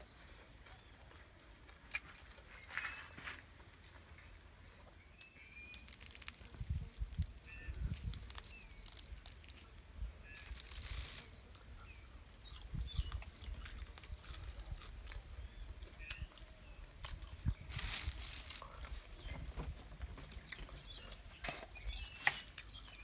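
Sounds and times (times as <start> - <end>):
small birds chirping: 0.0 - 23.0
plastic bag rustling: 5.7 - 11.4, 17.7 - 18.8.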